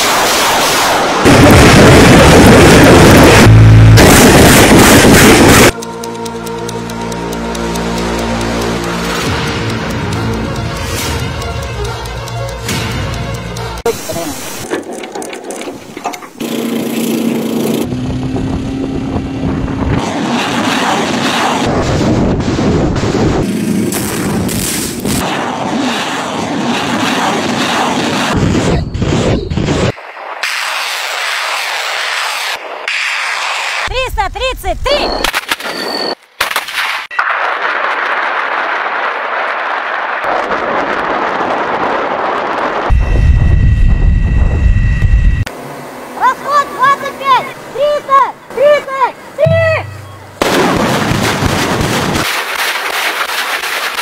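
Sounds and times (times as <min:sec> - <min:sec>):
artillery guns firing: 0:00.0 - 0:05.8, 0:49.5 - 0:54.0
rocket launcher salvo rushing: 0:00.0 - 0:05.8, 0:46.0 - 0:52.3
long rushing rumble: 0:00.1 - 0:14.6, 0:15.3 - 0:27.6, 0:40.3 - 0:52.3.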